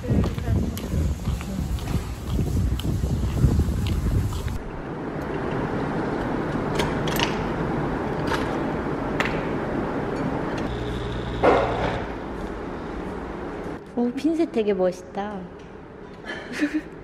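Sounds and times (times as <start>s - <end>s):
coffee machine pump buzzing: 10.7s - 12.2s.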